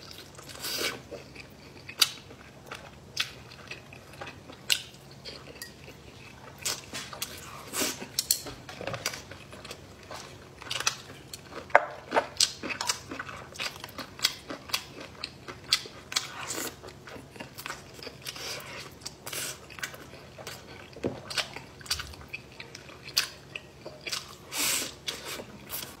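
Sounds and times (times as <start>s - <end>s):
person chewing and biting: 9.0s - 26.0s.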